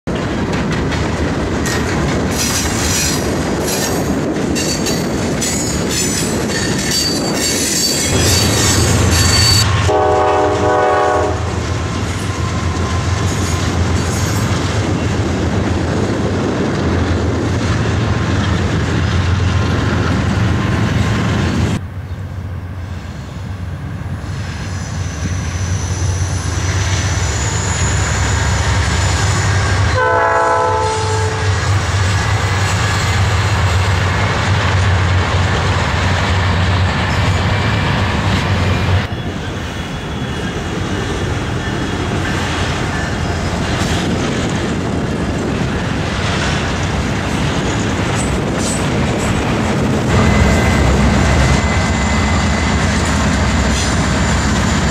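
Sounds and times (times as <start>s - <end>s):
train wheels clicking over rail joints: 0.1s - 10.0s, 31.5s - 54.9s
diesel locomotive rumble: 0.1s - 54.9s
high wheel squeal: 4.6s - 9.8s, 24.3s - 29.8s, 38.6s - 41.0s, 49.8s - 54.9s
train air horn: 9.2s - 11.6s, 29.9s - 31.6s.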